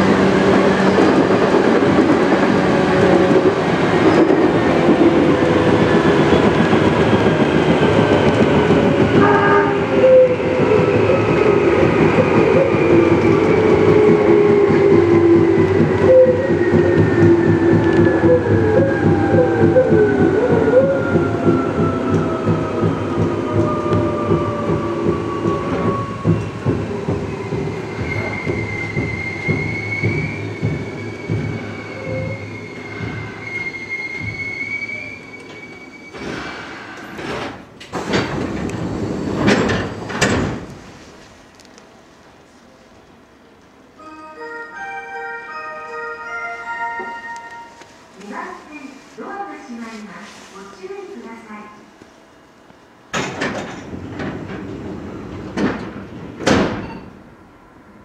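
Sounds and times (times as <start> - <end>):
train doors closing: 0.0 - 51.5, 52.5 - 58.0
high wavering squeal: 27.8 - 36.3.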